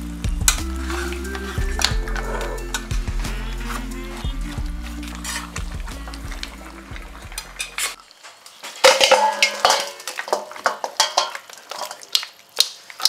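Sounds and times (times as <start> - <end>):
background music: 0.0 - 8.0
metal ladle scraping a pan: 1.0 - 8.0.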